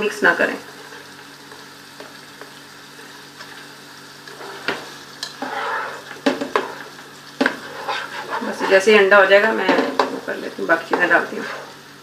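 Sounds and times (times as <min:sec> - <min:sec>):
eggs and onions sizzling in oil: 0:00.0 - 0:12.0
spoon tapping and scraping pan: 0:04.6 - 0:11.5.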